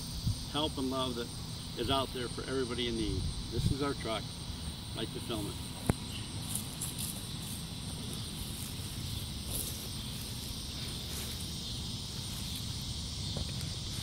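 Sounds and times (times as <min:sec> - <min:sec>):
wind rumble on microphone: 0:00.0 - 0:00.5
insects chirring: 0:00.0 - 0:14.0.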